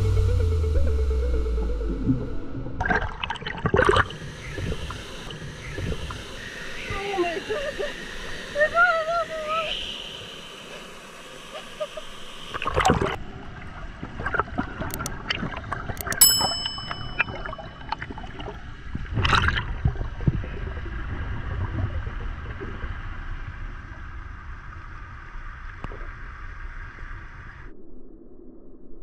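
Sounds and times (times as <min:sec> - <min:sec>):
water splashing and sloshing: 0:02.8 - 0:07.0
bright metallic ding: 0:16.0 - 0:18.0.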